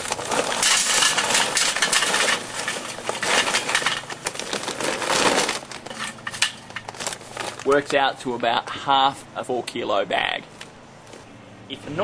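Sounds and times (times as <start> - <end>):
charcoal briquettes clattering into metal: 0.0 - 8.6.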